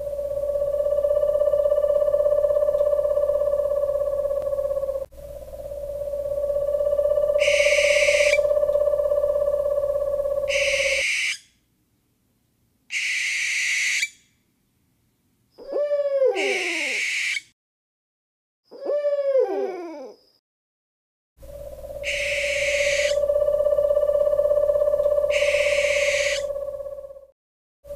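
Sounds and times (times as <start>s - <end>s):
owl screeching: 0.0s - 5.1s, 5.8s - 11.5s, 12.9s - 14.2s, 15.6s - 17.5s, 18.7s - 20.2s, 21.6s - 27.3s
owl hooting: 0.0s - 11.5s, 12.9s - 14.2s, 15.6s - 17.5s, 18.7s - 20.2s, 21.4s - 27.3s
wavering owl calls: 0.0s - 11.5s, 12.9s - 14.2s, 15.6s - 17.5s, 18.7s - 20.2s, 21.4s - 27.3s.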